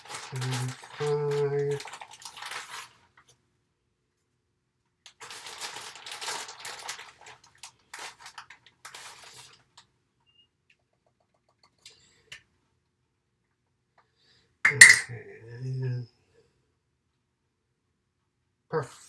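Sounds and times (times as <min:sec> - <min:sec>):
plastic bag crinkling: 0:00.0 - 0:03.3, 0:05.1 - 0:09.9.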